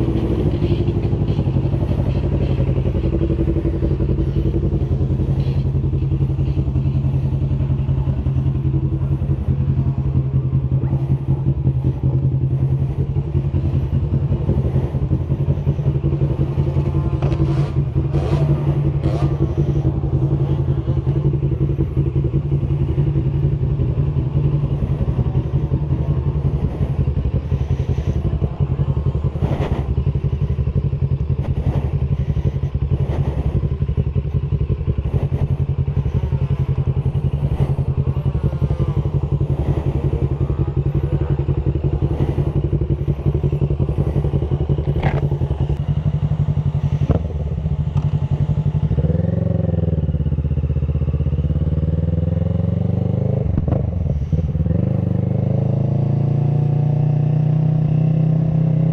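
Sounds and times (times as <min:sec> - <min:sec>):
motorcycle engine running: 0:00.0 - 0:58.9.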